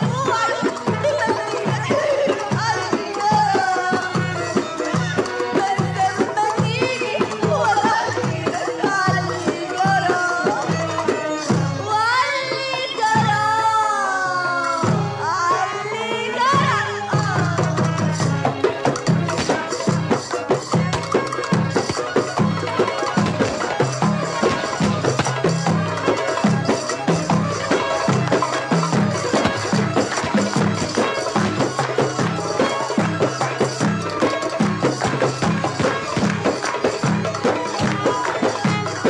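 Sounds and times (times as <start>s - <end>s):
folk band playing: 0.0s - 39.0s
violin: 0.0s - 39.0s
repeating drum beat: 17.6s - 39.0s.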